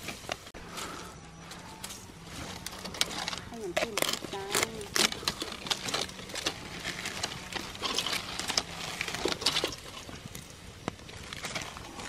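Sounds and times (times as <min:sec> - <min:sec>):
cockroaches crackling and popping in pot: 0:02.6 - 0:12.0.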